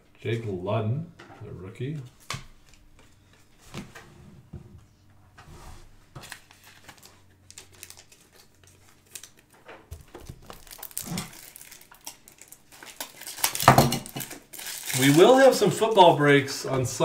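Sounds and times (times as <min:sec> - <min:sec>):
foil wrappers crinkling: 0:06.2 - 0:16.3.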